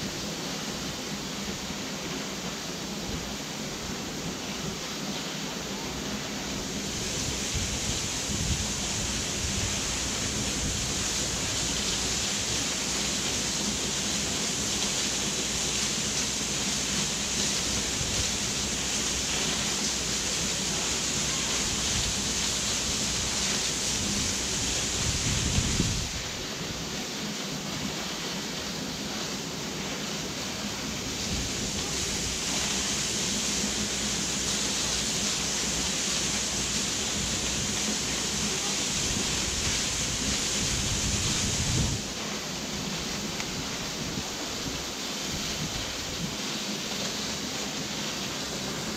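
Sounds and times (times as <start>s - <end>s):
waterfall rushing into pool: 0.0s - 48.9s
wind rumble on microphone: 6.8s - 12.7s, 21.6s - 26.8s, 30.9s - 33.0s, 38.9s - 42.1s, 42.8s - 46.5s.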